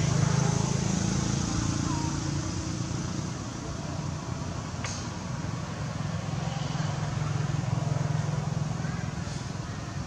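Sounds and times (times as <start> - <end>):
outdoor background hum and hiss: 0.0 - 10.0.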